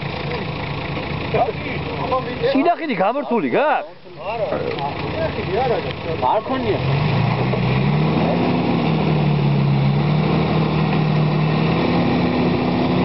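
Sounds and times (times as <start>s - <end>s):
suv engine revving: 4.1s - 13.0s.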